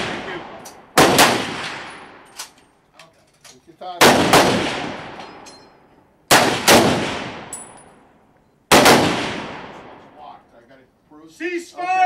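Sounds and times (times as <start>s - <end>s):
rifle shots echoing: 0.0s - 2.6s, 4.0s - 5.4s, 6.3s - 8.1s, 8.7s - 10.2s.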